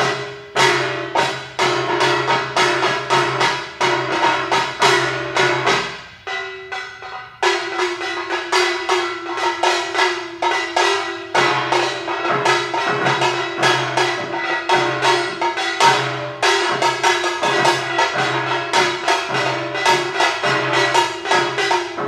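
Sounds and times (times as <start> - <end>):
gongs struck with mallets: 0.0 - 22.0.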